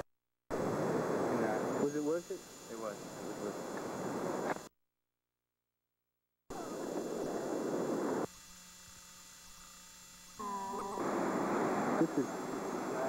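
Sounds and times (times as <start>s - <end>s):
videotape hiss: 0.6s - 4.7s, 6.5s - 8.4s, 9.5s - 13.0s
steady hum: 6.5s - 13.0s.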